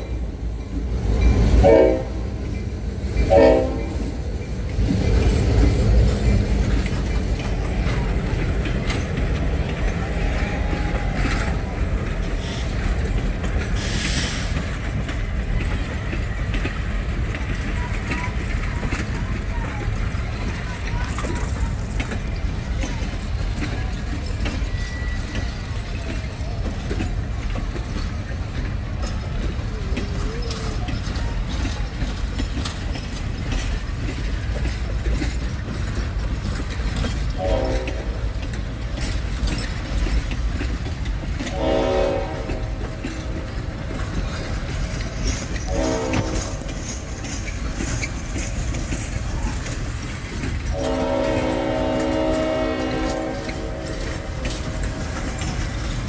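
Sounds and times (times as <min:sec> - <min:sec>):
train cars rumbling past: 0:00.0 - 0:56.0
locomotive horn blasts: 0:01.6 - 0:02.2, 0:03.2 - 0:04.2, 0:37.4 - 0:38.3, 0:41.4 - 0:42.8, 0:45.7 - 0:46.7, 0:50.7 - 0:54.4
wheel clicks over rail joints: 0:04.0 - 0:56.0.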